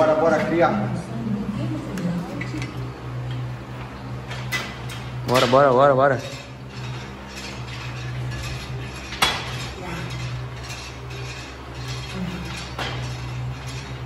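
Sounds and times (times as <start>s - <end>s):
steady low hum: 0.0s - 14.0s
cable machine metal clinks and rattles: 4.3s - 14.0s.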